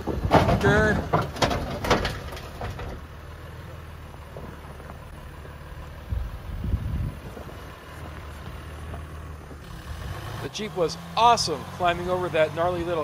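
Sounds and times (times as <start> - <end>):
diesel engine running at low revs: 0.0 - 13.0
low rumble: 5.0 - 9.7.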